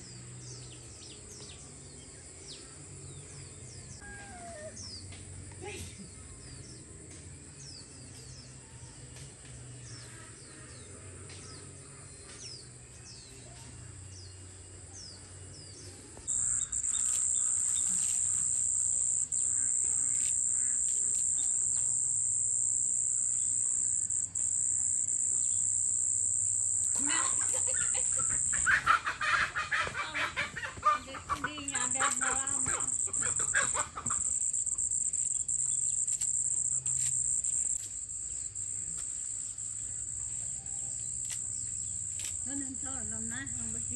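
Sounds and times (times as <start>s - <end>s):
birds chirping faintly: 0.0s - 43.9s
high steady insect drone: 14.0s - 43.9s
chickens clucking: 27.0s - 34.4s.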